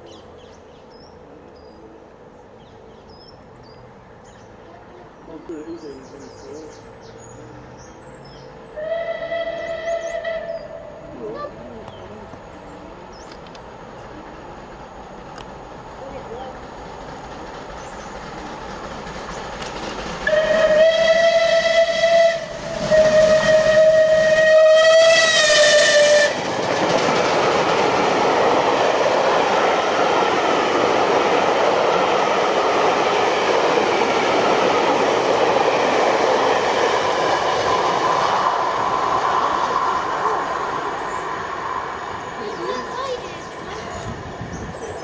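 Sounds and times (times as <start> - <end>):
train wheels rushing on rail: 0.0 - 45.0
steam locomotive whistle: 8.7 - 11.1, 20.2 - 26.5.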